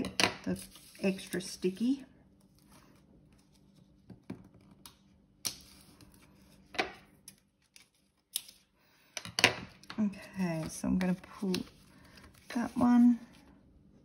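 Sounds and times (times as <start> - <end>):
paper rustling: 0.5 - 1.5.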